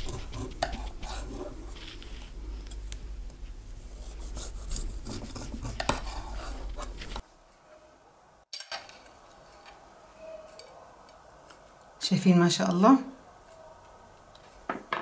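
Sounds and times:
knife sawing through cake: 0:00.0 - 0:01.7, 0:04.1 - 0:07.0.

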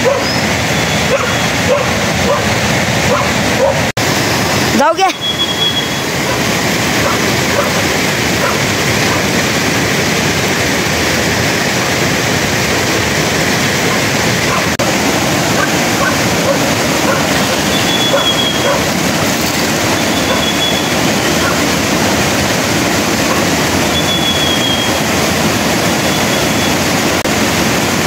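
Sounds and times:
running water rushing: 0:00.0 - 0:28.0.

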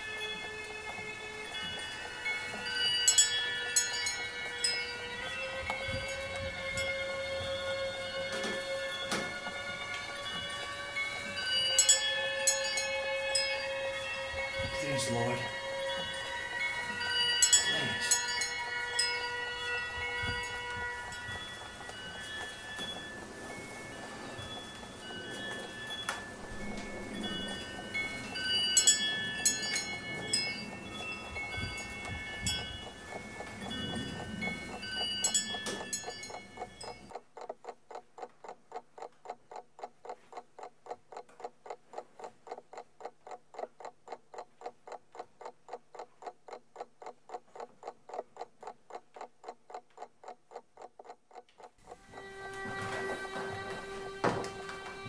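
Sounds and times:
tinkling chime-like tones: 0:00.0 - 0:37.1
clock ticking: 0:00.0 - 0:55.0.

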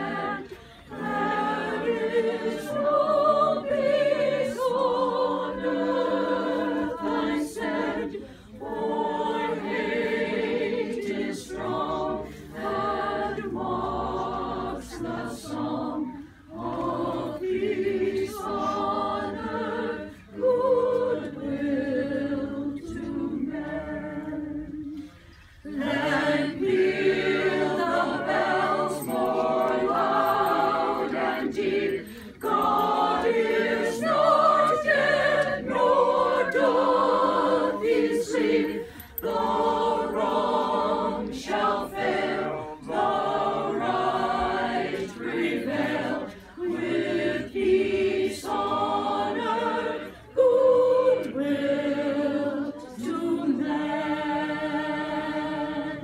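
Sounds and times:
group singing a carol: 0:00.0 - 0:56.0
singers breathing: 0:00.5 - 0:00.9, 0:08.2 - 0:08.6, 0:12.2 - 0:12.6, 0:32.0 - 0:32.4, 0:38.8 - 0:39.2.

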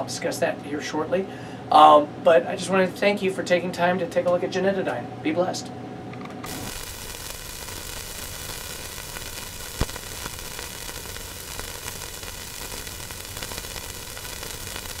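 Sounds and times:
faint crackles: 0:06.5 - 0:15.0
static hiss: 0:06.5 - 0:15.0
sharp pop: 0:09.6 - 0:10.4.

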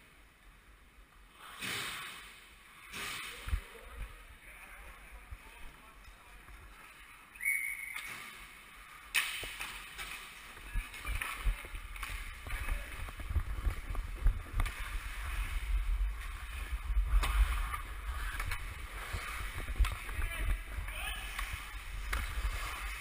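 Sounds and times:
hockey sticks and puck clicking: 0:07.9 - 0:23.0
skate blades scraping ice: 0:08.0 - 0:23.0
low microphone rumble: 0:10.7 - 0:23.0.

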